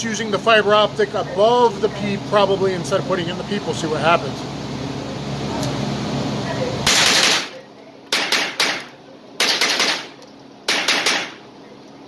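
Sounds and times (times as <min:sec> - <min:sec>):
steady hum: 0:00.0 - 0:12.0
rifle shots echoing indoors: 0:06.9 - 0:11.4.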